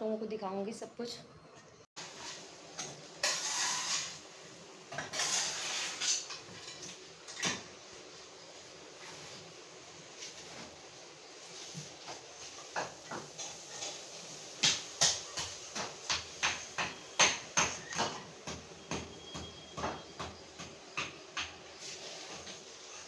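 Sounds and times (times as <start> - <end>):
hammer blows on masonry: 14.6 - 21.6.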